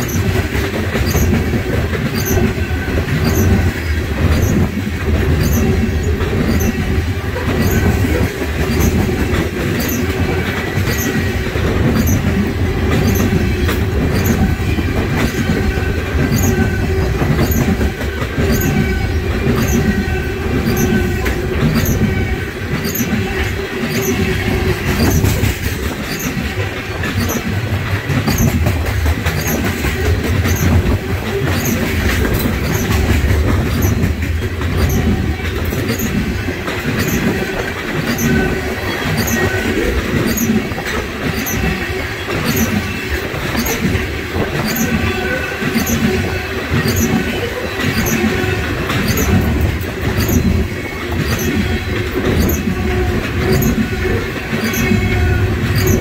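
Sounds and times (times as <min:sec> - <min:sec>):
train wheels rumbling on rail: 0:00.0 - 0:56.0
wheels clicking over rail joints: 0:00.0 - 0:56.0.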